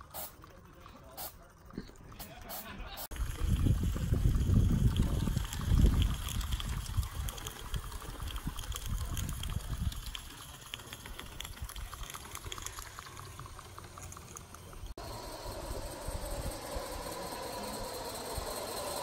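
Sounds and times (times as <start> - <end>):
steam locomotive sputtering: 0.0 - 19.0
steam hiss: 15.0 - 19.0.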